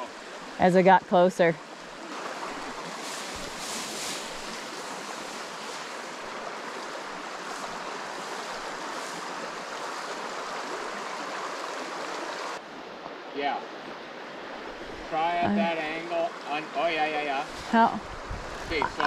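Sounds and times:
stream running over stones: 0:00.0 - 0:19.0
grass brushing past: 0:02.0 - 0:10.2.

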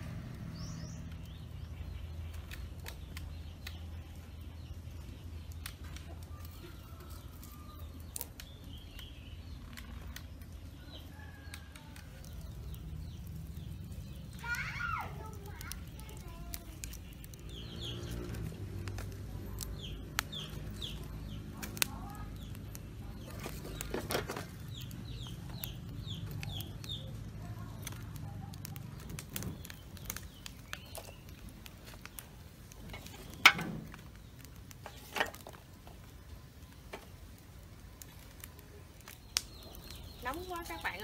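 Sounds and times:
chicks peeping: 0:00.6 - 0:23.9, 0:24.5 - 0:33.4.

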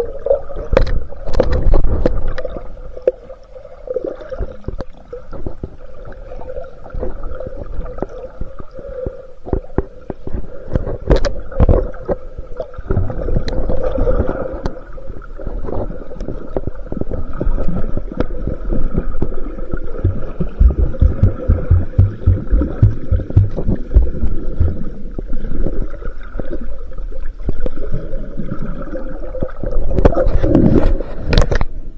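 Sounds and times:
muffled underwater water rumbling: 0:09.5 - 0:31.3
steady hum: 0:20.0 - 0:25.0.

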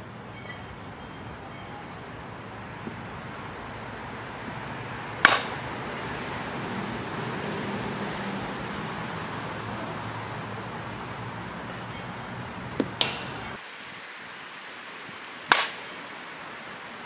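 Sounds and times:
steady background noise: 0:00.0 - 0:17.0
bat striking ball: 0:02.8 - 0:03.5, 0:04.4 - 0:06.2, 0:11.7 - 0:13.6, 0:15.0 - 0:16.4.

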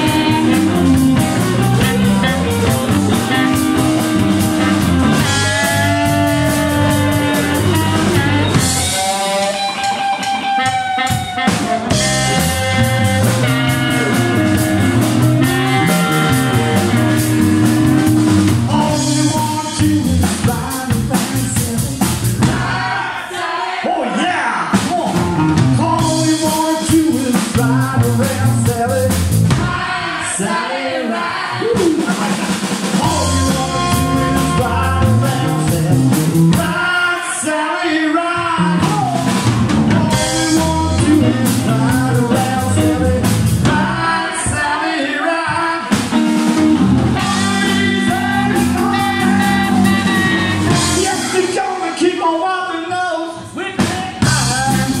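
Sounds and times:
electric guitar: 0:00.0 - 0:21.0, 0:33.0 - 0:36.8, 0:38.6 - 0:44.0, 0:45.9 - 0:51.5
electric bass: 0:00.0 - 0:22.8, 0:24.8 - 0:29.8, 0:32.9 - 0:36.9, 0:38.4 - 0:44.2, 0:45.9 - 0:51.6, 0:54.2 - 0:55.0
man singing lead vocals: 0:00.0 - 0:22.9, 0:23.7 - 0:55.0
drum kit: 0:00.0 - 0:23.2, 0:24.6 - 0:30.4, 0:31.4 - 0:37.1, 0:38.3 - 0:44.8, 0:45.5 - 0:52.0, 0:53.6 - 0:55.0.

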